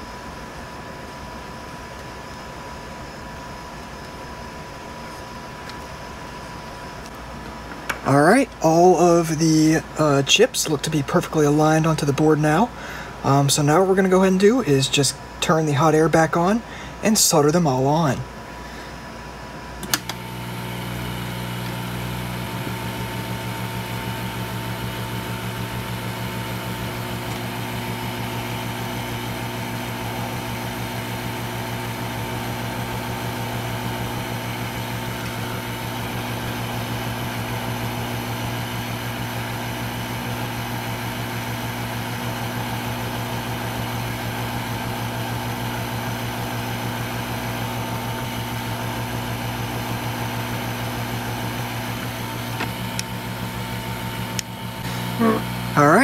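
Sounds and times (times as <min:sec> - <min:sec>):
hot-air blower whirring: 0:18.4 - 0:56.0.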